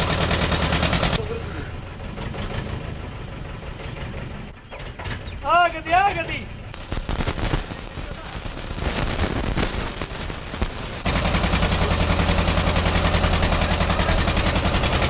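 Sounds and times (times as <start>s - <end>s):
small engine puttering: 0.0s - 1.2s, 9.1s - 15.0s.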